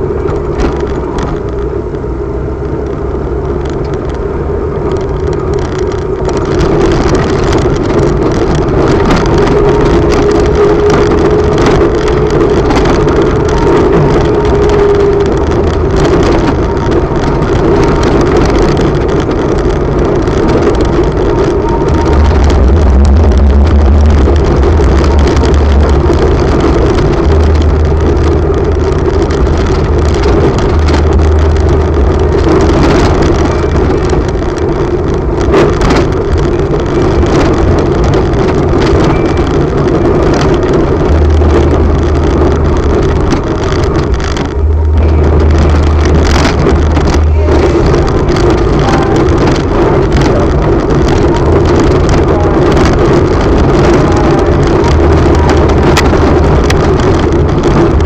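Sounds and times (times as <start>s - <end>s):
road rumble: 0.0s - 58.0s
vehicle engine humming: 0.0s - 58.0s
wind noise on microphone: 0.0s - 58.0s.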